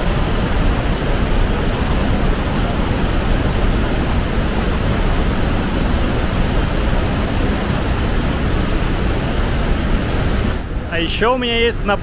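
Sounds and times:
rush of falling water: 0.0s - 12.0s.

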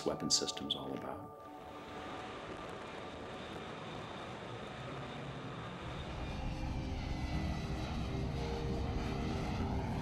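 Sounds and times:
fighter jet engine roar: 1.6s - 10.0s.

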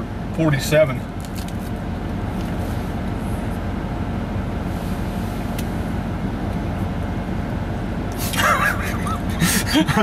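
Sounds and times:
truck engine idling: 0.0s - 10.0s.

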